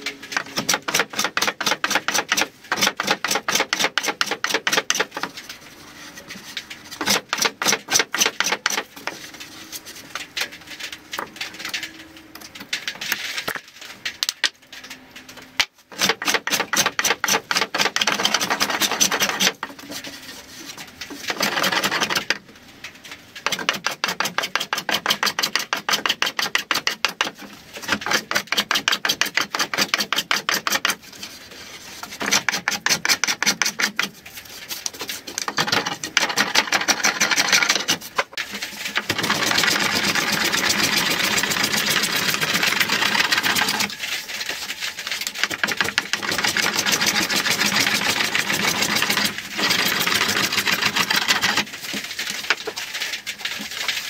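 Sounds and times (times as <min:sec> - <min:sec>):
saw ripping through wooden board: 0:00.0 - 0:05.3, 0:06.9 - 0:09.2, 0:15.6 - 0:20.0, 0:21.1 - 0:22.4, 0:23.4 - 0:34.2, 0:34.9 - 0:54.0.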